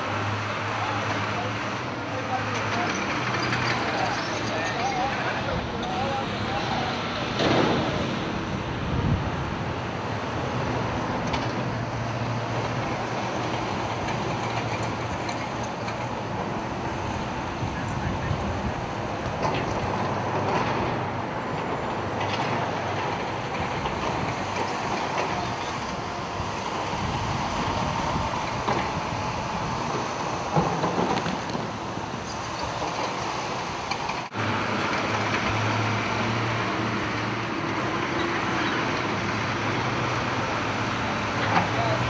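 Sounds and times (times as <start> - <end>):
road traffic going by: 0.0 - 42.0
wind noise on microphone: 8.4 - 11.0, 16.8 - 20.0, 25.8 - 32.7.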